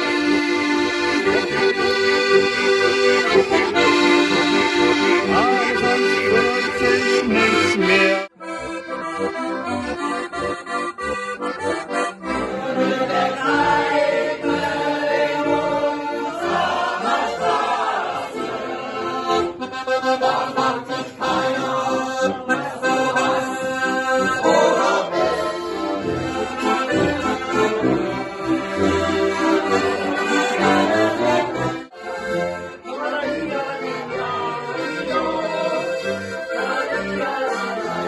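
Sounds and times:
button accordions playing folk tune: 0:00.0 - 0:38.0.

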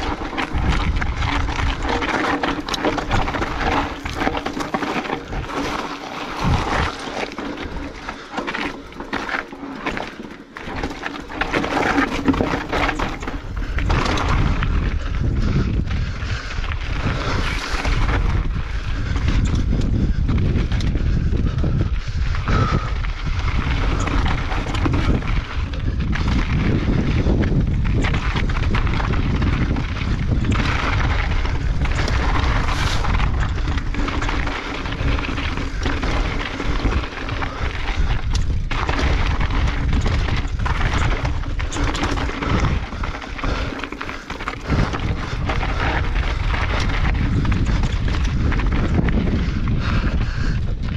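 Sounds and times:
bike rattling: 0:00.0 - 0:50.9
bike tyres crunching over rocks: 0:00.0 - 0:50.9
wind rumble on microphone: 0:00.0 - 0:50.9.

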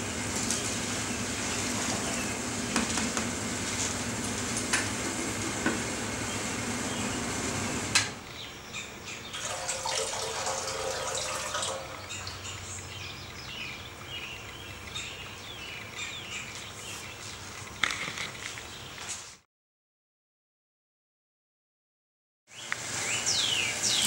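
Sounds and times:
steady rushing hiss: 0:00.0 - 0:08.2
birds chirping: 0:00.0 - 0:19.1, 0:22.5 - 0:24.0
liquid trickling into keg: 0:09.3 - 0:13.5.

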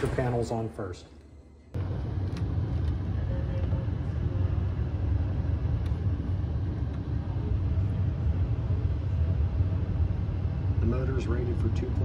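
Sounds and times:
heat pump blower rumbling: 0:01.7 - 0:12.0.

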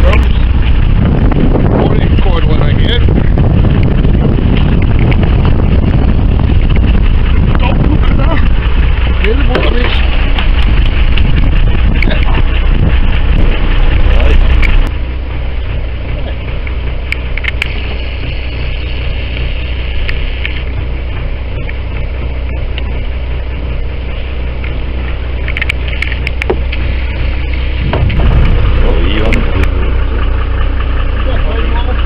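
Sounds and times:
boat engine idling: 0:00.0 - 0:32.0
water noise: 0:00.0 - 0:32.0
wind: 0:00.0 - 0:32.0
sharp clicks and knocks: 0:08.4 - 0:14.9, 0:16.5 - 0:17.8, 0:24.6 - 0:26.8, 0:27.5 - 0:29.8.

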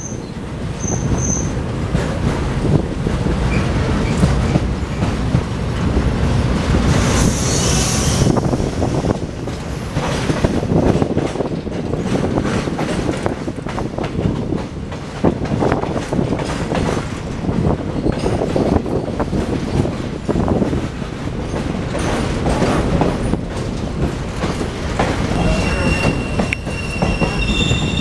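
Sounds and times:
train rumbling at speed: 0:00.0 - 0:28.0
wheels clattering over rail joints: 0:09.4 - 0:28.0.

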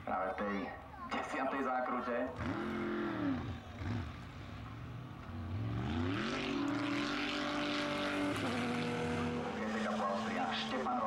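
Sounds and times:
race car engine revving: 0:02.3 - 0:11.0.

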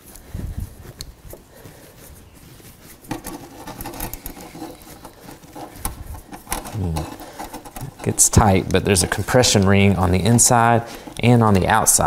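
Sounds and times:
plastic collar rubbing and clicking: 0:00.0 - 0:12.0.

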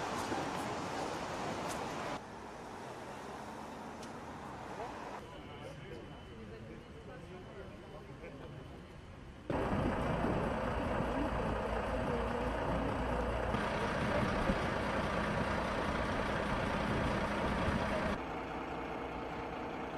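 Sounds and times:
outdoor noise: 0:00.0 - 0:19.9
heavy lorry engine rumbling: 0:09.5 - 0:19.9.

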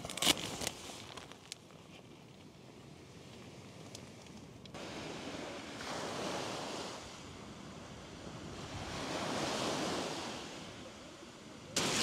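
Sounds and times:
sea waves washing in: 0:04.8 - 0:12.0.

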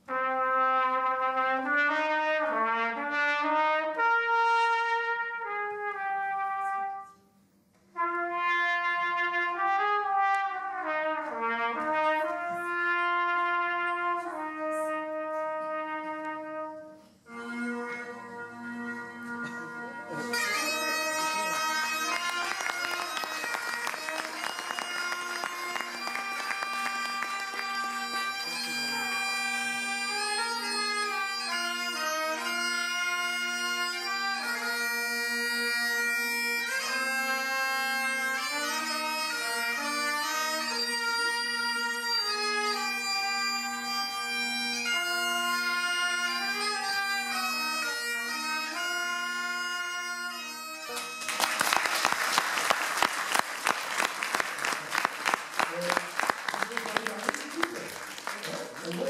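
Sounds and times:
trumpet playing: 0:00.0 - 0:07.2, 0:07.9 - 0:56.8
bagpipes playing over drones: 0:17.3 - 0:51.6
applause: 0:21.9 - 0:28.4, 0:50.9 - 0:59.0.

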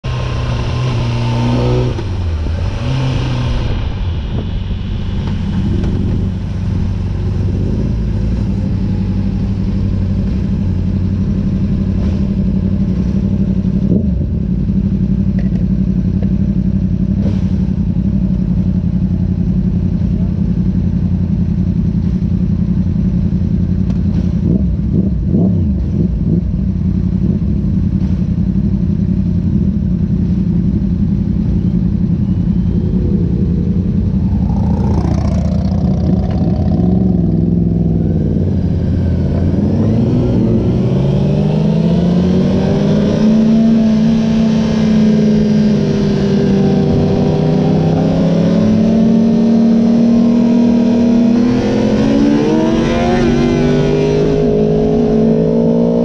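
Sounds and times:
motorcycle engine: 0:00.0 - 0:56.0
wind rush: 0:02.0 - 0:09.4, 0:32.1 - 0:42.7.

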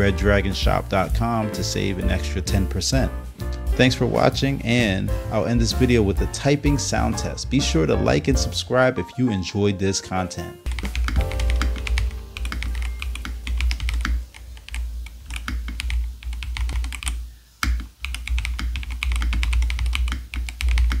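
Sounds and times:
sustained music notes: 0:00.0 - 0:15.4
mechanical keyboard typing: 0:10.7 - 0:21.0.

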